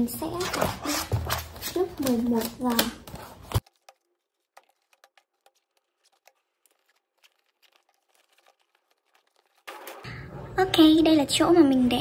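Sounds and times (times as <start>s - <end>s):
items rustling on a desk: 0.2s - 10.1s.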